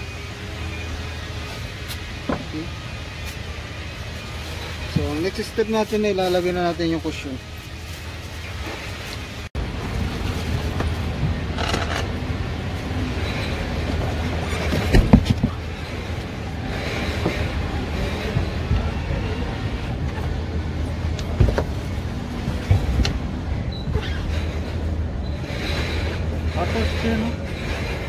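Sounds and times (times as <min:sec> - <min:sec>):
steady low rumble: 0:00.0 - 0:28.0
metal seat frame knocks and clatter: 0:14.4 - 0:15.6.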